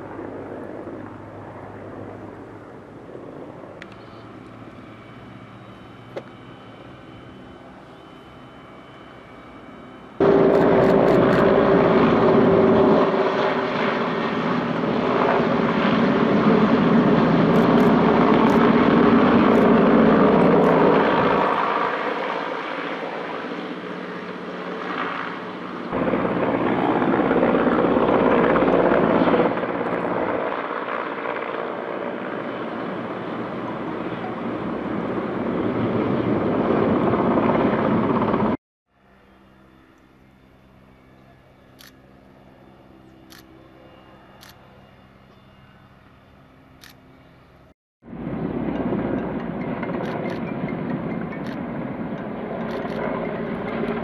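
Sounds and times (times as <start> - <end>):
faint steady engine hum: 0.0 - 12.2, 38.3 - 54.0
helicopter rotor and engine: 0.0 - 54.0.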